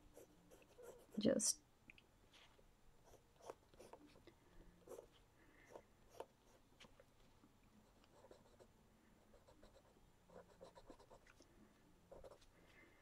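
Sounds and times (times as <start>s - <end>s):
pencil scratching on paper: 0.0s - 1.2s, 3.0s - 4.2s, 4.8s - 6.6s, 7.8s - 8.7s, 9.3s - 11.3s, 12.1s - 12.5s.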